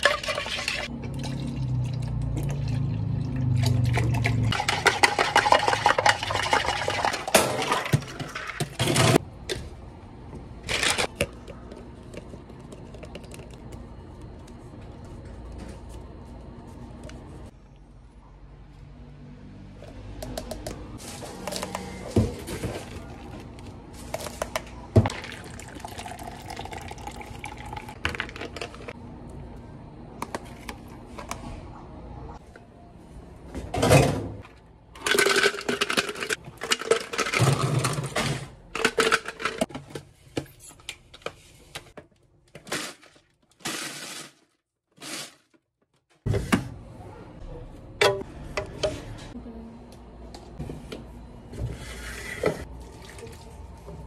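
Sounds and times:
spoon and plastic cups clattering: 3.7 - 9.2, 27.5 - 29.0, 35.0 - 40.0.

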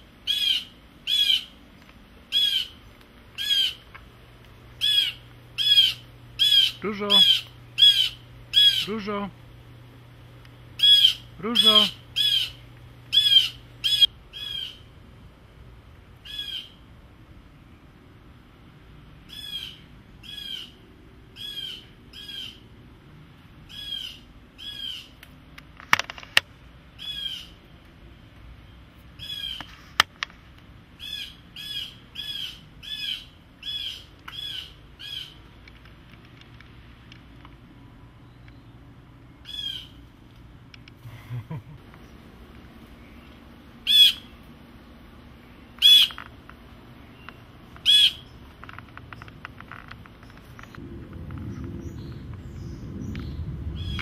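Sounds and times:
blue jay harsh calls: 0.2 - 1.6, 2.3 - 4.0, 4.7 - 9.3, 10.8 - 14.9, 16.2 - 16.9, 19.2 - 22.7, 23.6 - 25.2, 27.0 - 27.6, 29.2 - 29.7, 31.0 - 35.5, 39.4 - 40.0, 43.0 - 44.5, 45.5 - 46.3, 47.0 - 48.4, 52.6 - 54.0.

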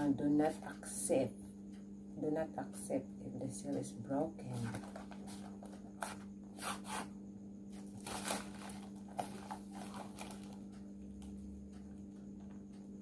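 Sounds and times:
packaging rustling and crinkling: 4.7 - 6.2, 7.8 - 10.6.

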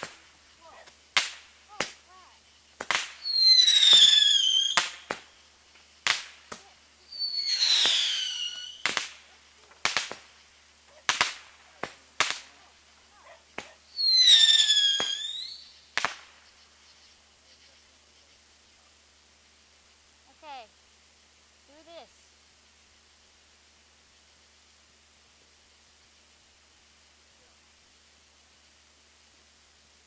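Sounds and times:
firework bangs: 0.0 - 2.1, 2.7 - 16.5
firework whistles falling in pitch: 2.8 - 5.3, 7.1 - 9.2, 13.9 - 16.2.

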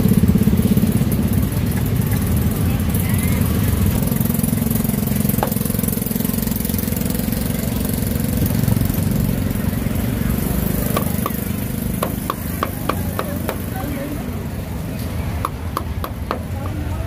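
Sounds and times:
small engine idling: 0.0 - 17.0
cleaver knocking on chopping block: 12.0 - 13.7, 15.4 - 16.8.

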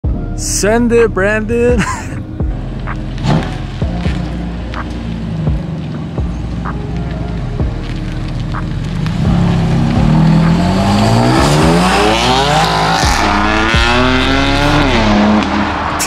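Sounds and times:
car engine accelerating hard: 8.8 - 16.0.

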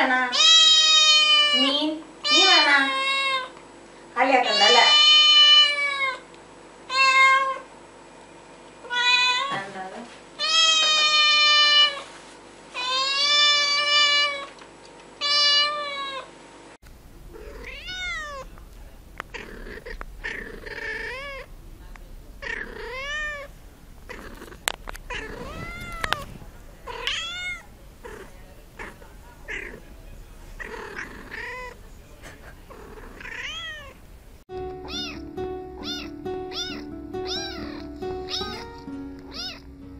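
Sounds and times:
cat meowing loudly: 0.3 - 1.6, 6.9 - 7.6, 8.8 - 9.6, 10.4 - 12.0, 15.2 - 16.3, 17.3 - 18.5, 19.3 - 21.5, 22.4 - 23.5, 25.1 - 26.3, 26.9 - 29.8, 30.6 - 31.8, 32.9 - 34.0, 34.8 - 35.2, 35.8 - 38.7, 39.3 - 39.6.

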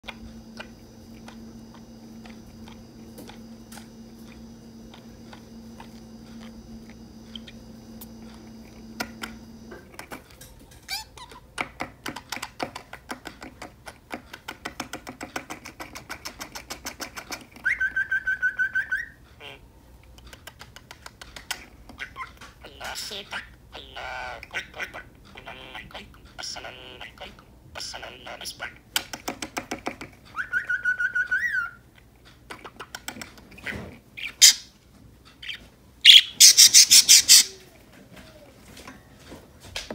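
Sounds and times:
budgerigar chattering: 22.0 - 28.8, 33.7 - 34.7, 35.4 - 37.7
budgerigar fast trill: 35.4 - 37.6.

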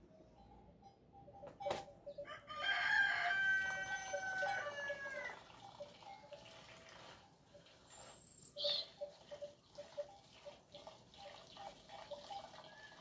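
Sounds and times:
rooster crowing: 2.2 - 5.4.

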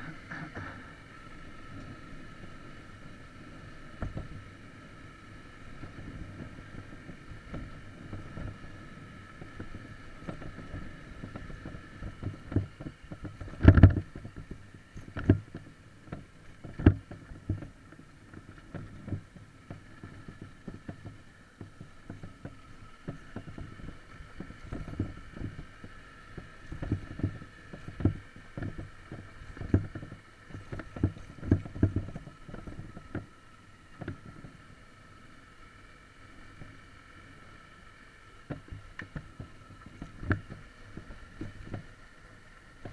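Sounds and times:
dirt bike engine drone: 0.0 - 42.9
wheels knocking on stones: 9.3 - 33.3, 38.4 - 42.0.

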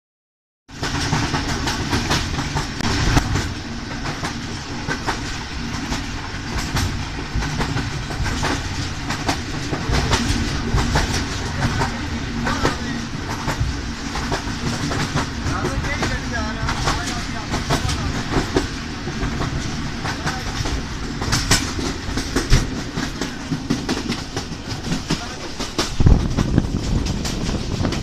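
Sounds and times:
train wheels rumbling on track: 0.7 - 28.0
wheels clacking over rail joints: 0.7 - 28.0.

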